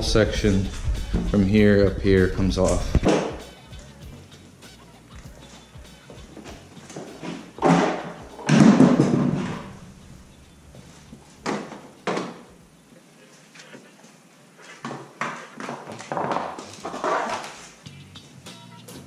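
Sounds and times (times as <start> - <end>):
plastic panels knocking and clunking: 6.9 - 9.8, 11.4 - 12.4.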